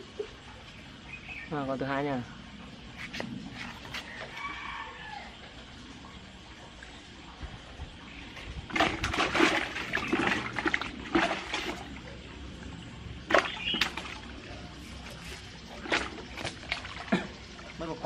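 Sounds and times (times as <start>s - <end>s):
water splashing and sloshing: 0.0s - 18.0s
sharp splashes: 8.6s - 12.1s, 13.2s - 17.9s.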